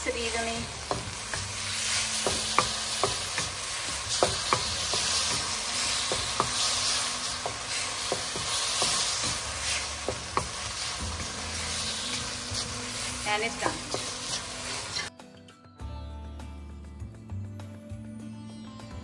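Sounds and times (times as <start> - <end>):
meat sizzling in a wok: 0.0 - 15.1
utensil clicking against wok: 0.8 - 11.3.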